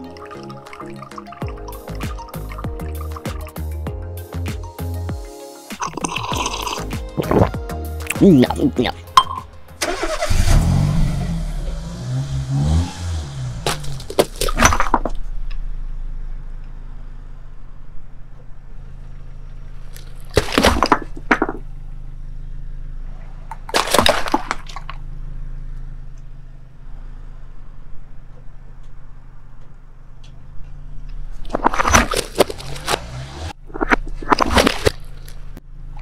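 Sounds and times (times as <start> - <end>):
car engine humming: 0.0 - 36.0
watermelon bursting under tyre: 13.6 - 15.0, 23.6 - 25.0, 34.2 - 35.6.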